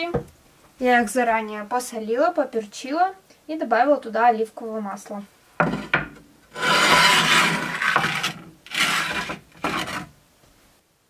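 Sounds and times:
baking pan scraping on brick: 0:05.6 - 0:10.1.

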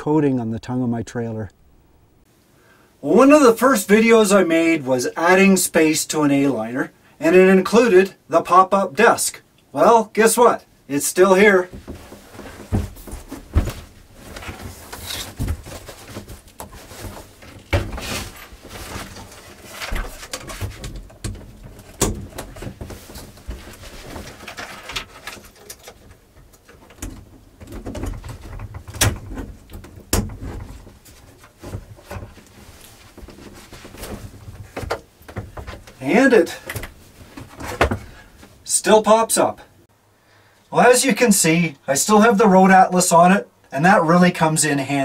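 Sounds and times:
cushions rustling: 0:11.7 - 0:20.8, 0:22.5 - 0:24.9, 0:30.7 - 0:36.2.

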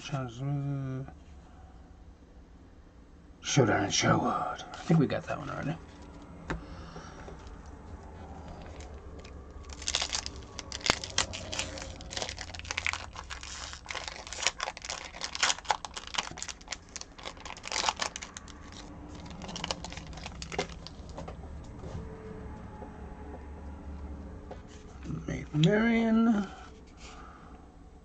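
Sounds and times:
wrapper tearing and crinkling: 0:08.6 - 0:21.2.

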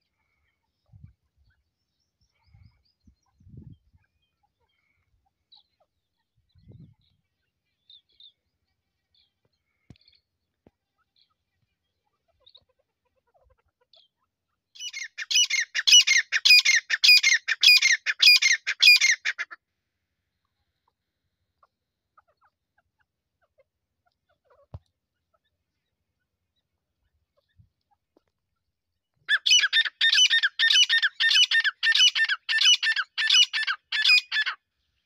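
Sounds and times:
faint bird chirps: 0:00.0 - 0:19.2
harsh repeated bird call: 0:29.3 - 0:34.6.

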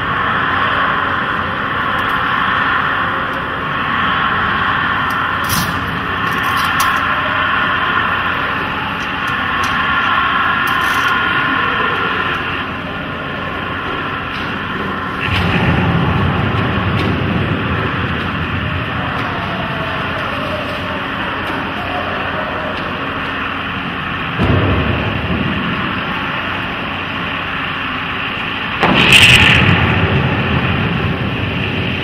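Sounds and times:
deep low rumble: 0:00.0 - 0:21.5.

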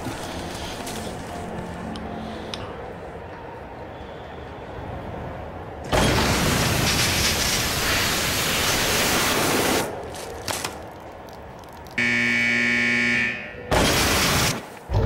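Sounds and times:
hose spraying water: 0:06.4 - 0:10.7
steady buzzing tone: 0:12.0 - 0:13.6.

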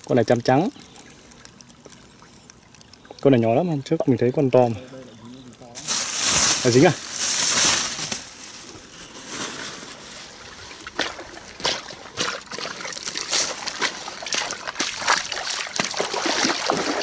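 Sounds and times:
water dripping: 0:00.0 - 0:06.8, 0:10.6 - 0:17.0
water splashing from wading: 0:10.0 - 0:17.0.

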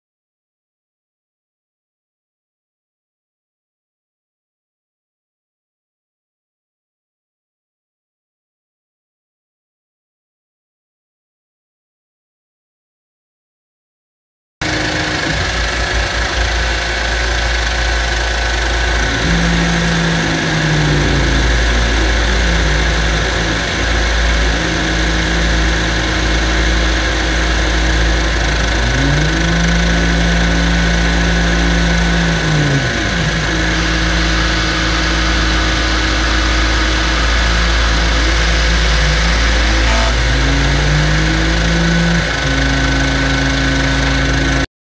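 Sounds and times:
shop vacuum running: 0:14.6 - 0:44.7.

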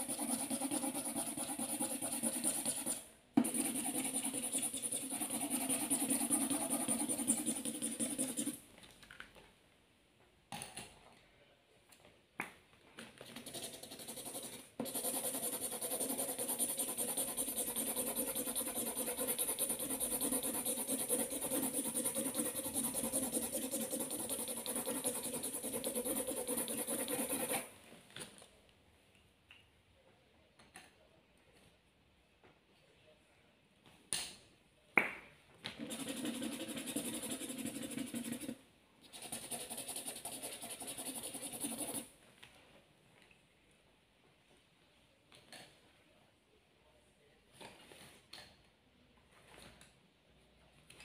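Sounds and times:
marker scribbling on paper: 0:00.0 - 0:08.6, 0:13.3 - 0:27.7, 0:35.8 - 0:42.1.

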